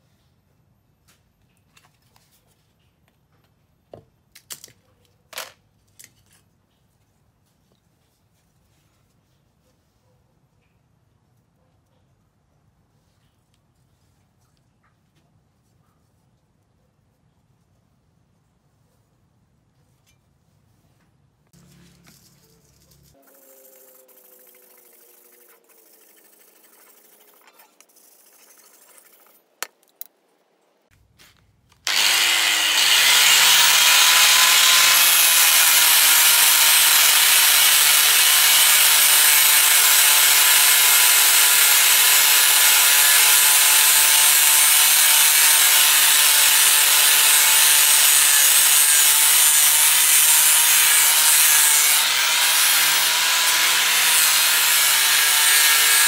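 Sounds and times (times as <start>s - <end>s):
angle grinder grinding metal: 21.6s - 29.5s, 31.8s - 56.0s.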